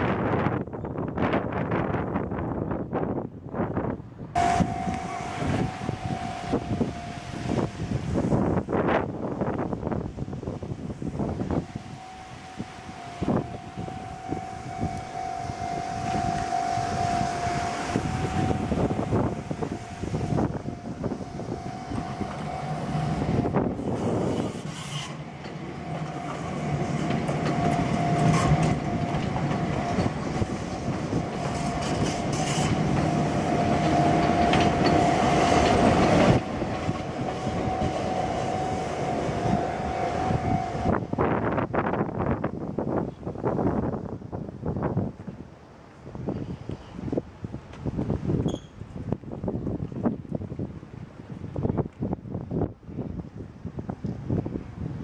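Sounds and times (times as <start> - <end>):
train running on rails: 0.0 - 55.0
steady whine: 4.4 - 9.0, 11.1 - 41.7.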